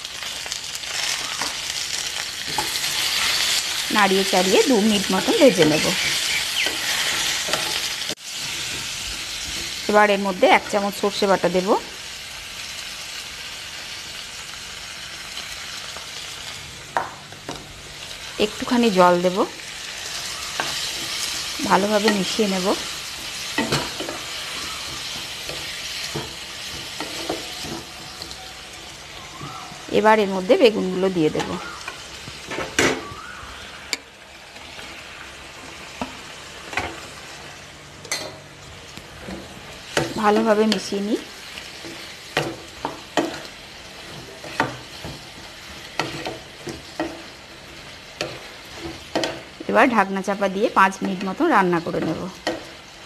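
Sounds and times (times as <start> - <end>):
vegetables sizzling: 0.0 - 53.0
spatula scraping pan: 5.4 - 9.9, 19.9 - 29.5.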